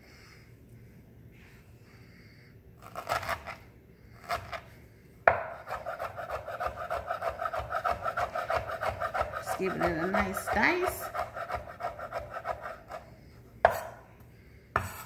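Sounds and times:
knife chopping on wooden board: 5.3s - 13.0s, 13.6s - 14.0s, 14.8s - 15.0s.

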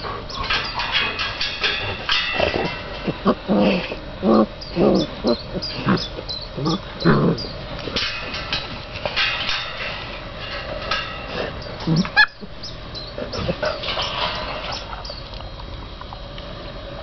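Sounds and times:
puppies whining and yipping: 3.0s - 7.6s.

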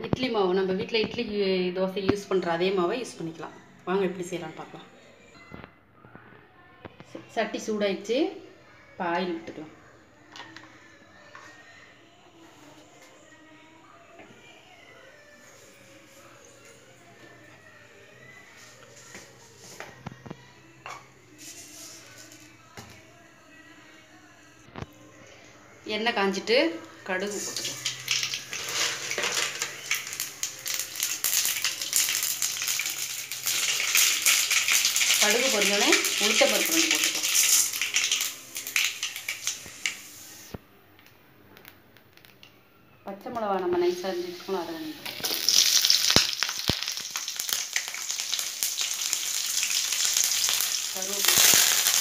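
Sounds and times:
seeds spluttering in hot oil: 27.3s - 40.5s, 45.0s - 52.0s.

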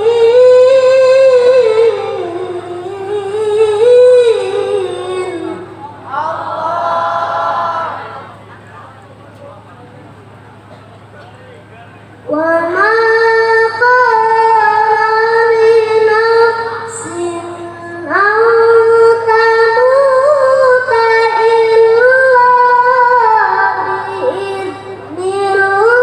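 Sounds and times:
boy reciting melodically over loudspeaker: 0.0s - 8.4s, 10.7s - 26.0s.

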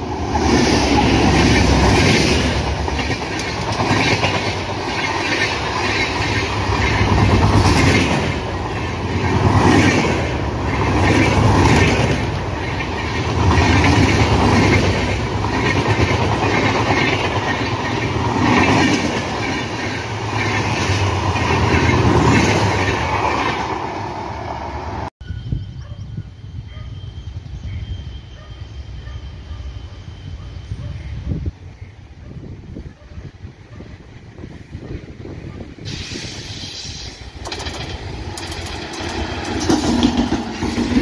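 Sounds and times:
train wheels rumbling and clattering: 0.0s - 24.5s, 34.2s - 41.0s.

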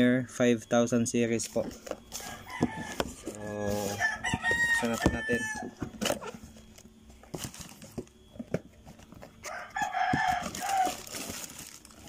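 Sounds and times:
cardboard box and paper rustling: 1.4s - 12.0s
rooster crowing: 2.1s - 6.4s, 9.4s - 11.4s.

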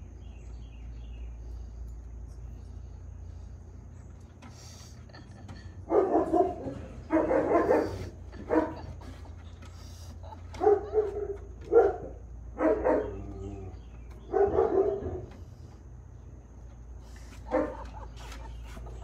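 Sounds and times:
dog barking: 5.9s - 9.0s, 10.5s - 13.6s, 14.2s - 15.3s, 17.5s - 18.1s.

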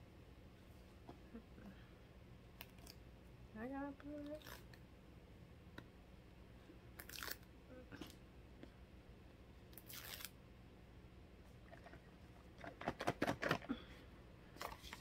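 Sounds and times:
box crinkling and clicking: 12.6s - 13.7s.

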